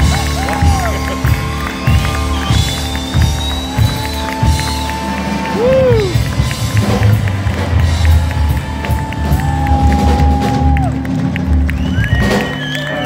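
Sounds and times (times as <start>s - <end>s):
drums: 0.0s - 13.0s
piano: 0.0s - 13.0s
slapped double bass: 5.6s - 12.6s.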